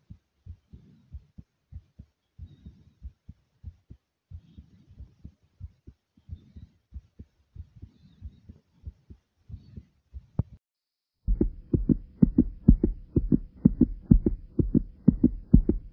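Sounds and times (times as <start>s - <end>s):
heartbeat thumping: 0.0s - 10.6s, 11.2s - 15.9s
faint steady hum: 11.3s - 15.9s.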